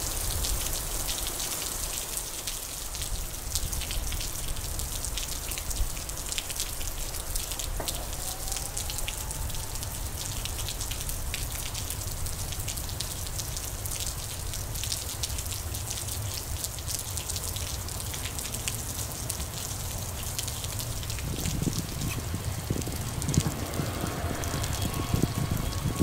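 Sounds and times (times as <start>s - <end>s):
heavy rain pouring: 0.0s - 26.0s
low rumble: 20.9s - 26.0s.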